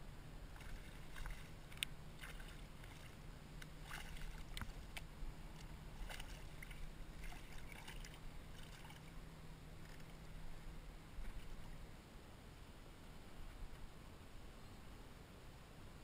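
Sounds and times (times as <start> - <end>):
fish splashing at water surface: 0.6 - 3.2, 3.8 - 4.8.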